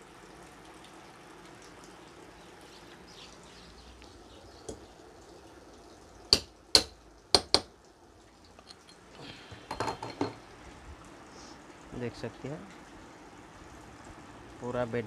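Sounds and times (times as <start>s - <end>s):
hammer striking metal tube: 6.4s - 7.7s.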